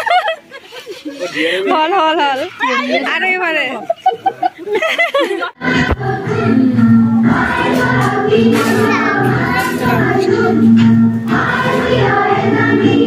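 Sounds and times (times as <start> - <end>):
song with voices singing: 5.6 - 13.0.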